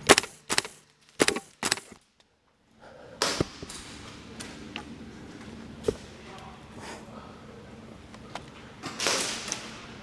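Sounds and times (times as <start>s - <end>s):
airsoft rifle shots: 0.0s - 2.0s, 9.0s - 9.7s.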